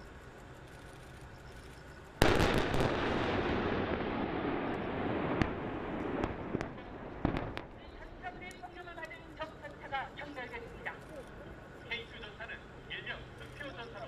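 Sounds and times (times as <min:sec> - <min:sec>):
rolling rumble: 0:00.0 - 0:14.0
sharp cracks: 0:00.8 - 0:09.2
explosion blasts: 0:02.2 - 0:07.8.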